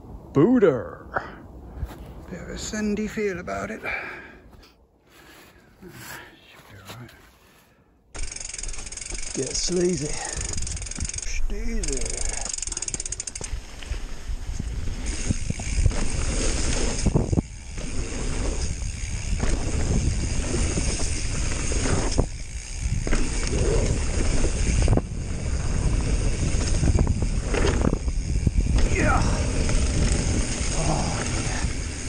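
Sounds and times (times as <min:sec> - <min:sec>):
bike rattling: 0:08.1 - 0:32.0
wind on microphone: 0:13.4 - 0:32.0.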